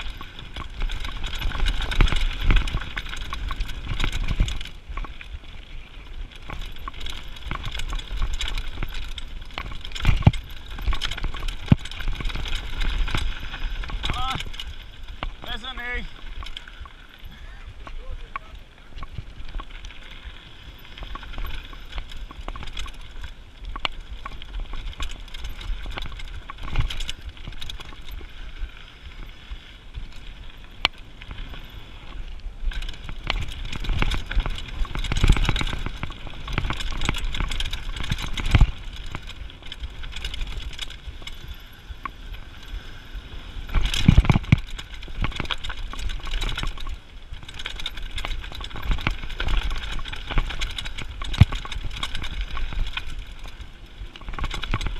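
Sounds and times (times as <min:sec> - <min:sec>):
bike frame rattling: 0:00.0 - 0:54.9
bike tyres crunching over stones: 0:00.0 - 0:54.9
bike knocking over bumps: 0:06.3 - 0:16.6, 0:32.7 - 0:41.5, 0:43.7 - 0:53.2.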